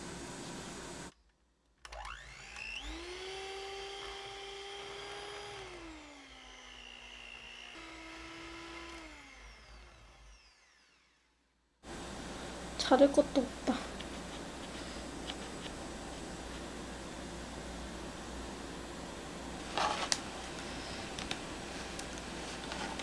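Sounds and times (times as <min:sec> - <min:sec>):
electric hand mixer whirring: 0:01.9 - 0:11.4, 0:19.4 - 0:23.0.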